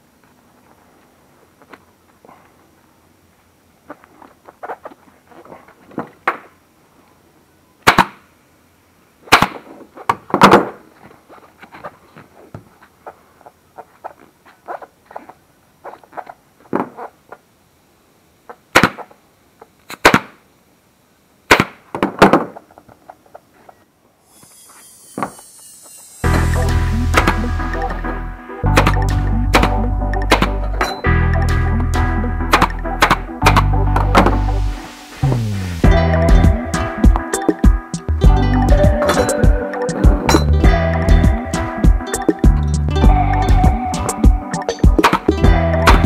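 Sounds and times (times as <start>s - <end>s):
short hiss of air: 24.2s - 27.3s
pneumatic stapler shots: 24.4s - 26.3s.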